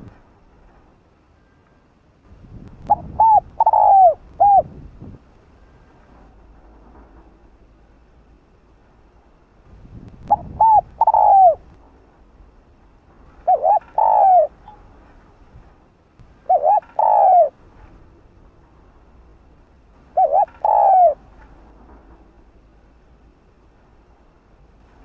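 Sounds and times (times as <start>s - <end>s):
dove cooing: 2.9s - 4.7s, 10.3s - 11.7s, 13.4s - 14.6s, 16.4s - 17.6s, 20.1s - 21.3s.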